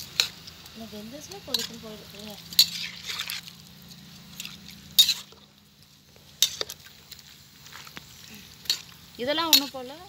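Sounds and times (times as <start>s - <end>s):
metal ladle scraping a pot: 2.4s - 3.5s, 4.3s - 5.5s, 6.4s - 9.9s.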